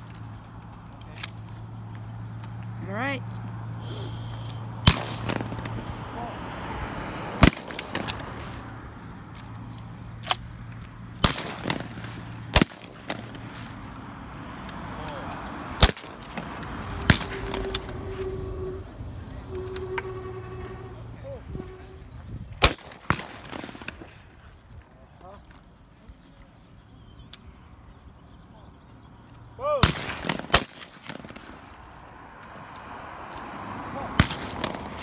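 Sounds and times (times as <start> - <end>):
shotgun shots: 4.8 - 6.2, 7.4 - 8.5, 11.2 - 13.6, 15.8 - 18.2, 22.6 - 24.2, 29.7 - 31.7, 34.1 - 35.0.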